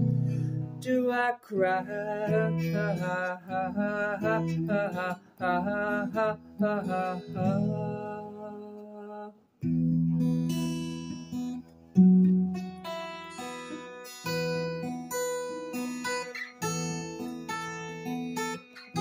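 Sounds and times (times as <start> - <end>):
strummed acoustic guitar: 0.0 - 19.0
man singing: 0.7 - 9.4.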